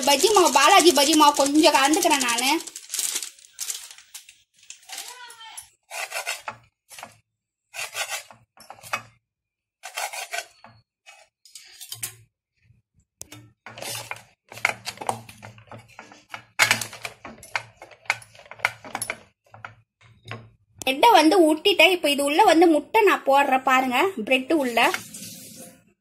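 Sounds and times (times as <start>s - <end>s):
utensil scraping bread on a board: 5.9s - 8.9s, 9.8s - 11.3s.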